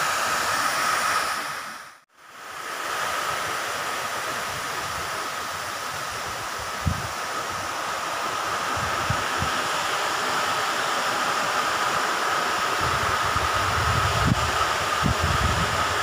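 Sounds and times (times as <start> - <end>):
water rushing through sluice gate: 0.0 - 16.0
wind buffeting microphone: 12.8 - 16.0.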